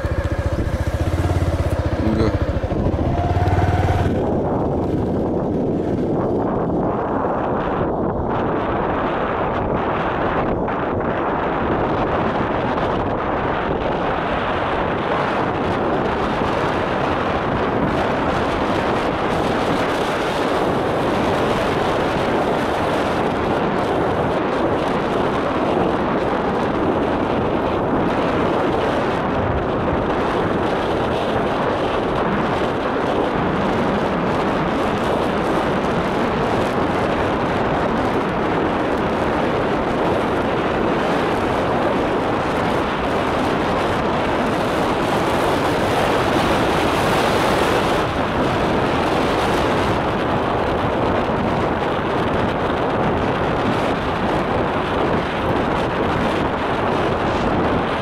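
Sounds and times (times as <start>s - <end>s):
motorcycle engine: 0.0s - 7.7s
wind on microphone: 0.0s - 58.0s.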